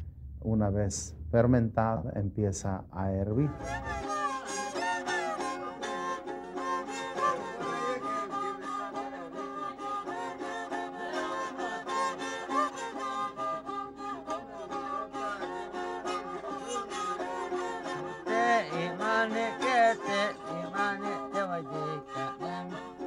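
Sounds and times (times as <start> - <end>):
held low drone note: 3.3 - 4.1
fiddle melody: 3.3 - 23.0.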